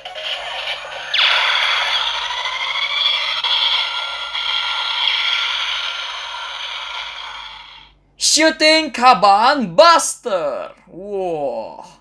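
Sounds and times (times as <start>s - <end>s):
electronic toy blast effect: 0.0s - 8.0s.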